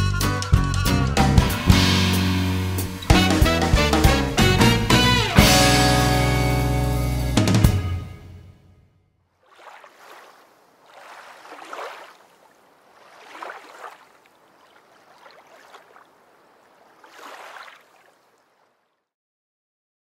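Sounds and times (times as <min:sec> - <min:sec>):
rushing surging water: 0:09.4 - 0:18.9.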